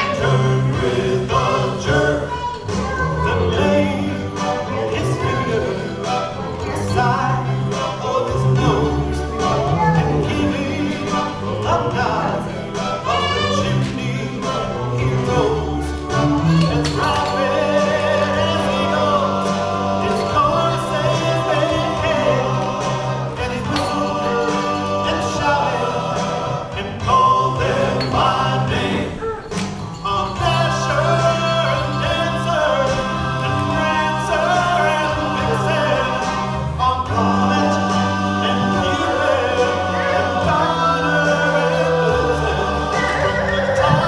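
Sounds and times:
song with several voices singing: 0.0s - 44.0s.

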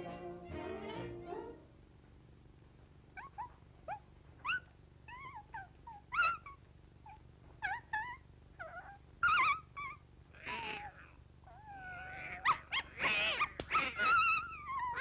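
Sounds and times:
cartoon puppy yips and whines: 3.2s - 15.0s.

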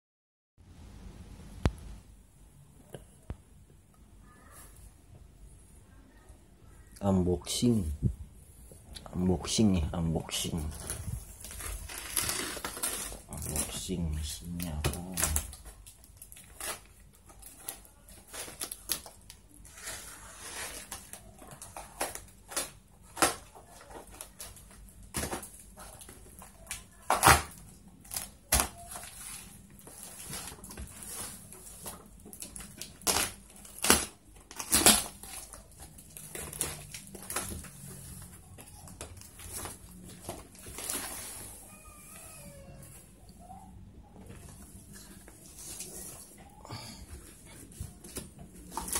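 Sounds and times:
tape ripping: 10.7s - 13.8s, 14.8s - 26.0s, 26.6s - 38.2s.

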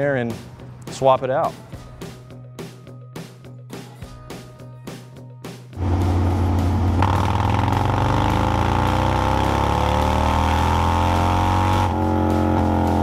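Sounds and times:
motorcycle engine revving: 5.8s - 13.0s.

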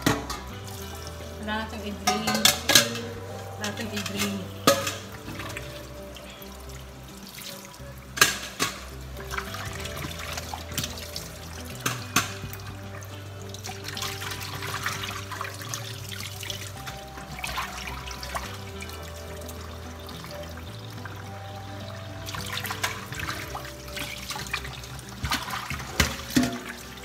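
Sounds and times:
fish being rinsed by hand: 0.0s - 27.0s
water splashing: 0.0s - 27.0s
tap running into metal sink: 25.2s - 27.0s.

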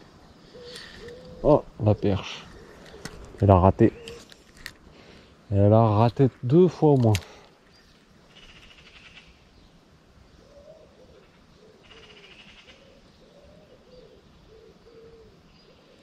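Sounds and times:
pigeon cooing: 0.4s - 4.3s, 10.4s - 16.0s.

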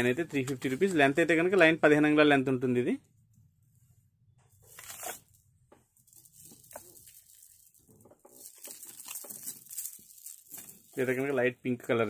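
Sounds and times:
beads clicking and rustling: 5.9s - 11.3s.

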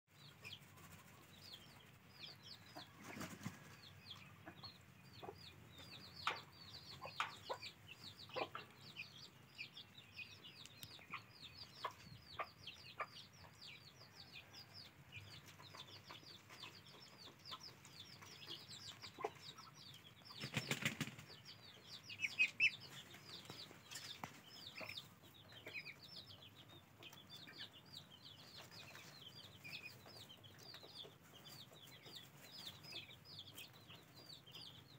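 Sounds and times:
ducklings peeping: 0.1s - 34.9s
feathers rustling and flapping: 20.4s - 21.3s.

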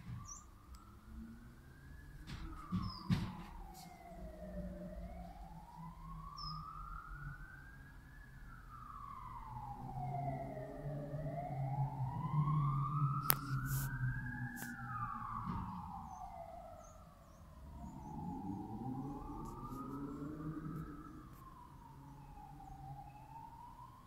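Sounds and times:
siren wailing: 0.0s - 24.0s
high bird chirp: 0.2s - 0.5s.

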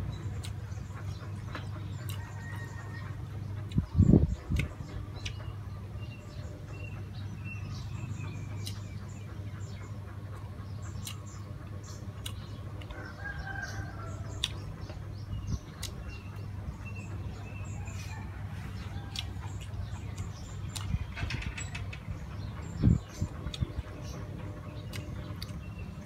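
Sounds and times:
hen clucking: 0.0s - 26.0s
person chewing food: 2.0s - 3.0s, 14.3s - 14.6s, 15.7s - 16.0s, 18.9s - 20.9s, 24.9s - 25.6s.

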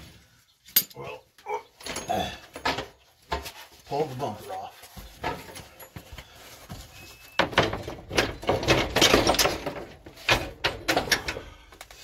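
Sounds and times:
bumper scraping and clattering: 4.9s - 11.6s.

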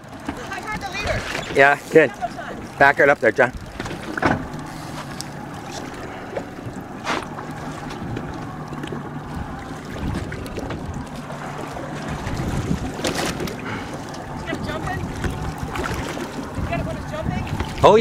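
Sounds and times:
boat engine humming: 0.0s - 18.0s
water noise: 0.0s - 18.0s
wind on microphone: 0.7s - 1.6s, 6.6s - 18.0s.

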